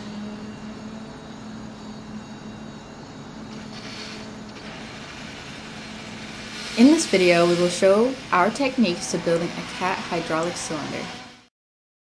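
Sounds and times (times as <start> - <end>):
low humming drone: 0.0 - 11.5
rushing hiss: 3.5 - 8.6.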